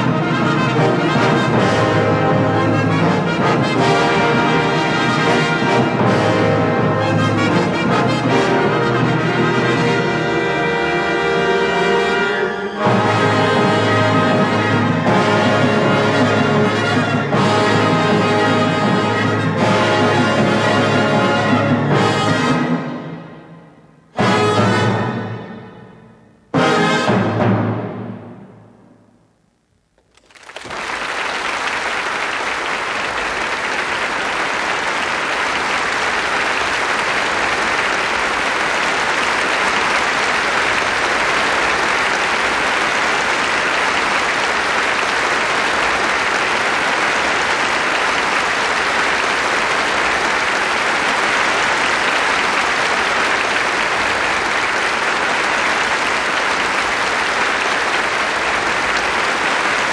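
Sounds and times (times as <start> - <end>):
audience applause: 30.0 - 59.9.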